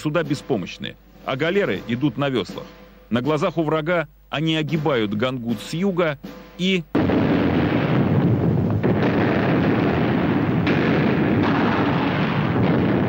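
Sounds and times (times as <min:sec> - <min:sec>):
cannon fire and explosions: 0:07.0 - 0:13.0.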